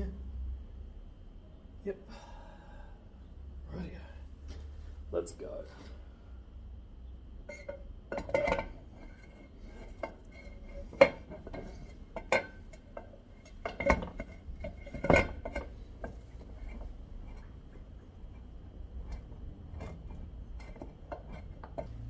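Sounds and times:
metal clinks and knocks: 7.5s - 22.0s.

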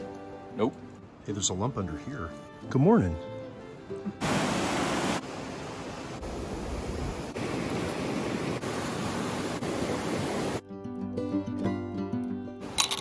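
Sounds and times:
river rushing through whitewater: 4.2s - 10.6s.

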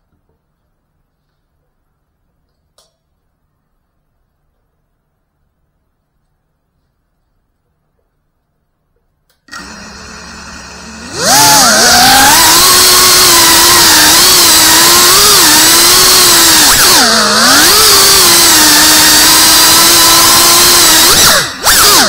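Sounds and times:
drone motors whining: 9.5s - 22.0s.

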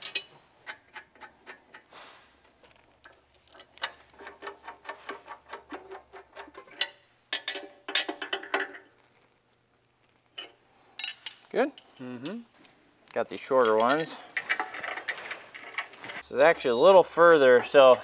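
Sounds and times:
metallic clinks of steel tools: 13.6s - 14.3s.

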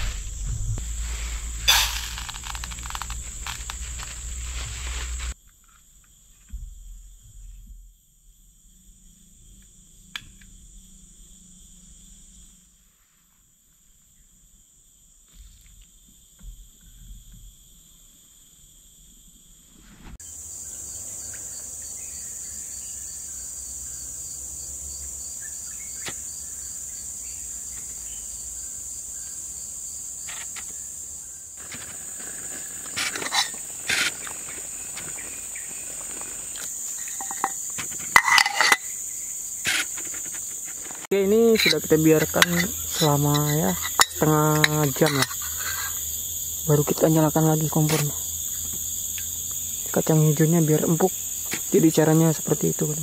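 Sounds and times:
insects chirring: 0.0s - 53.0s.

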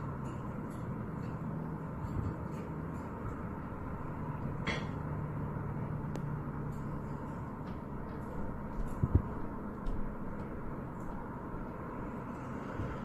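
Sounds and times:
outdoor background rumble: 0.0s - 13.0s.

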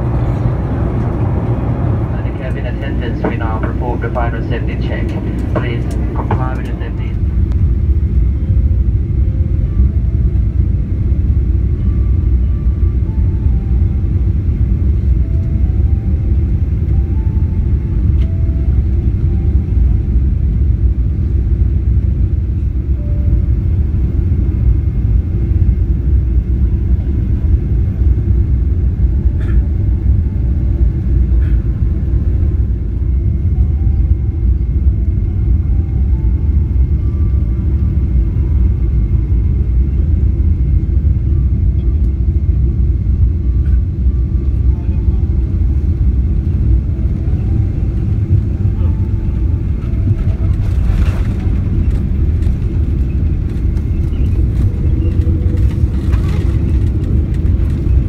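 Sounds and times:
airplane cabin engine rumble: 0.0s - 58.0s.

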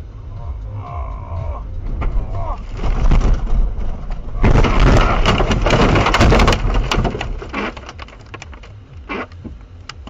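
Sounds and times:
car crashing into trees: 1.9s - 7.9s.

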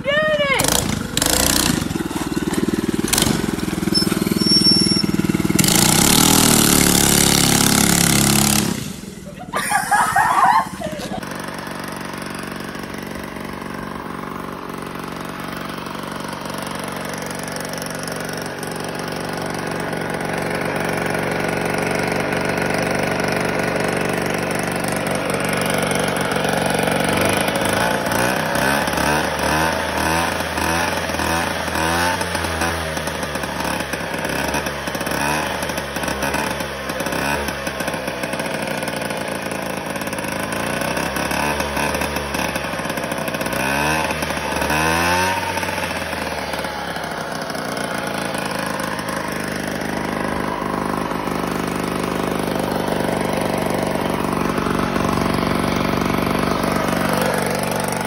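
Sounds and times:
minibike engine revving: 0.0s - 58.0s
moped engine idling: 0.0s - 58.0s.

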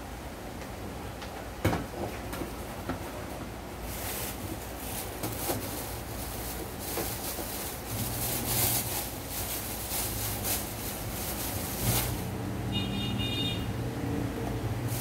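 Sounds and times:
plastic bag crinkling: 3.9s - 12.4s.

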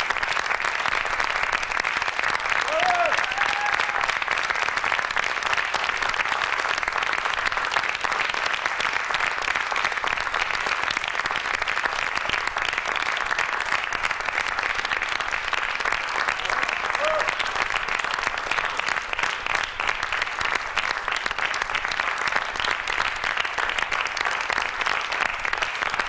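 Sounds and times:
audience applauding: 0.0s - 26.0s
person whooping: 2.6s - 4.1s, 16.6s - 17.4s.

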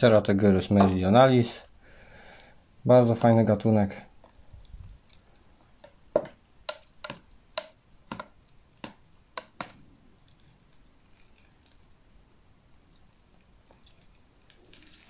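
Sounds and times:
plastic containers tapping: 5.8s - 9.8s.

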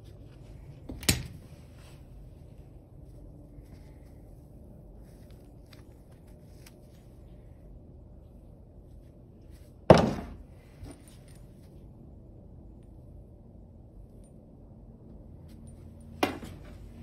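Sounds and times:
tool clunking on wooden workbench: 9.9s - 10.4s.

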